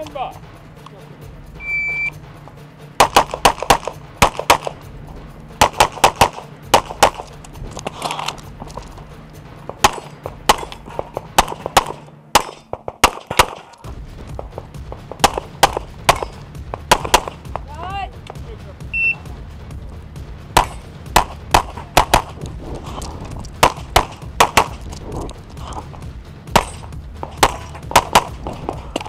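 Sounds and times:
rapid pistol shots: 3.0s - 4.8s, 5.6s - 7.3s, 9.7s - 17.6s, 20.5s - 22.4s, 23.6s - 25.0s, 26.5s - 28.8s.

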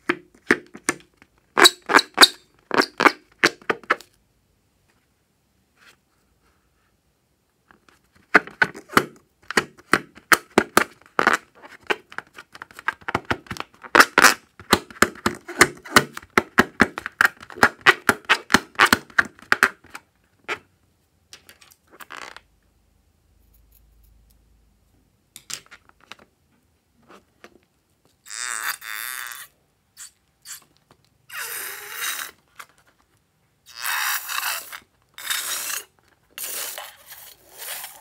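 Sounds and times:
rubber balloon squeaking: 1.6s - 3.6s, 13.8s - 14.4s, 15.2s - 19.6s, 28.2s - 30.7s, 31.3s - 32.5s, 33.7s - 38.0s.

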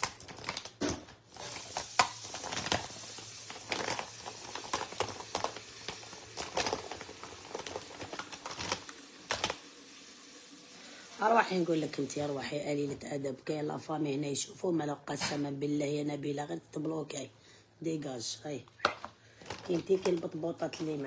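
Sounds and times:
small objects clicking and rustling: 0.0s - 9.6s, 18.8s - 21.0s.

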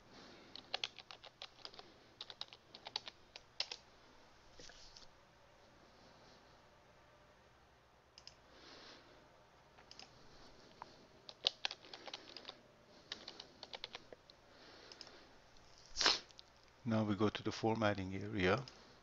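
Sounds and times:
faint keyboard typing: 0.3s - 3.9s, 8.1s - 8.5s, 9.8s - 16.8s, 17.8s - 19.0s.

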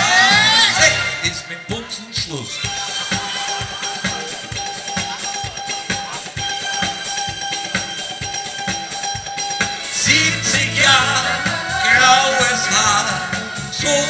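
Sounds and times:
person singing: 0.0s - 5.6s, 9.8s - 14.0s
bass line: 0.0s - 14.0s
drum beat: 0.0s - 14.0s.

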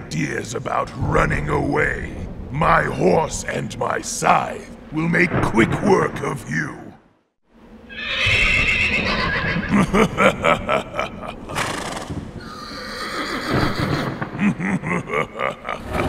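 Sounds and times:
recorded horse whinny: 7.9s - 9.7s, 11.6s - 14.2s.

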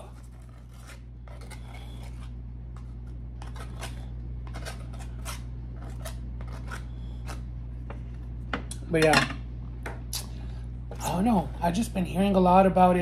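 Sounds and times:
knife scraping tostada shell: 0.0s - 7.5s
low steady hum: 0.0s - 13.0s.

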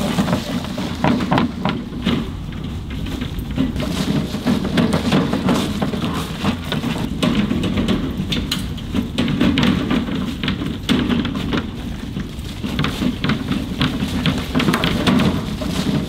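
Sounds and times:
footsteps crunching dry leaves: 0.0s - 2.0s, 3.0s - 7.1s, 11.7s - 16.0s.

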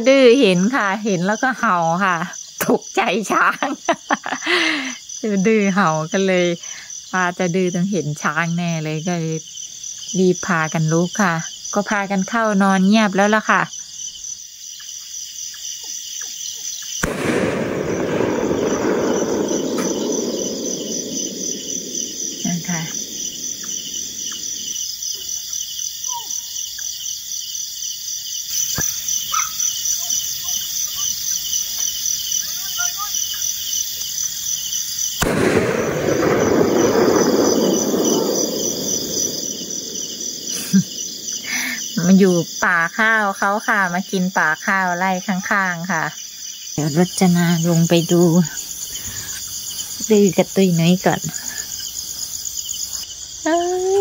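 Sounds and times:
crickets chirping: 0.0s - 54.0s
low rushing noise: 17.2s - 24.7s.

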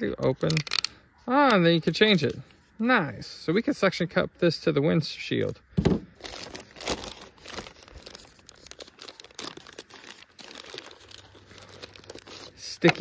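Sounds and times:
plastic bag crinkling: 6.1s - 13.0s.

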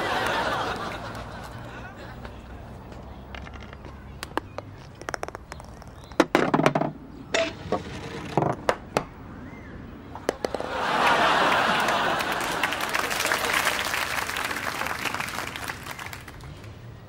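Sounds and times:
audience applause: 0.0s - 1.6s, 10.5s - 16.7s
putter striking golf ball: 10.2s - 10.6s
golf ball rattling down chutes: 10.2s - 10.8s.

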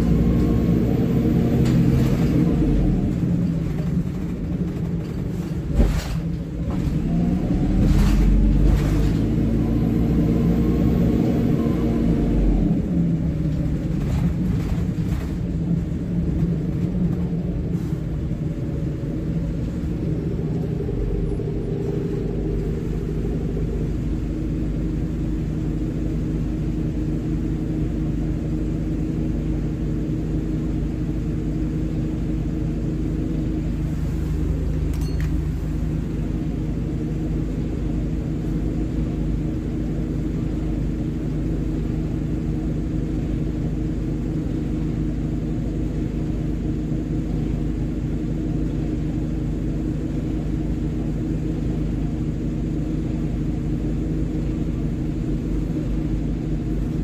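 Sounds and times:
bus diesel engine droning: 0.0s - 57.0s.

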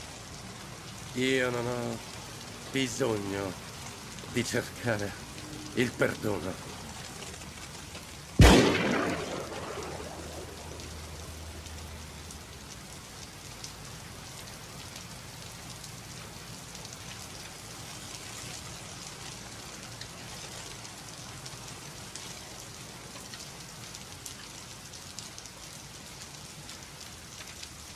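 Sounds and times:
heavy rain: 0.0s - 27.9s
gunshot with echo: 8.4s - 10.5s.

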